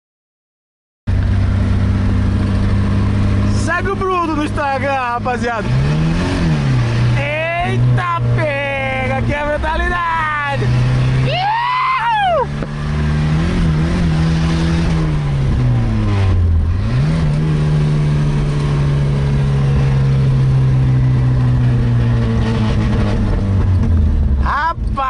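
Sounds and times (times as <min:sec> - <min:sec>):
car engine accelerating: 0:01.1 - 0:25.0
short high whoop: 0:11.2 - 0:12.6.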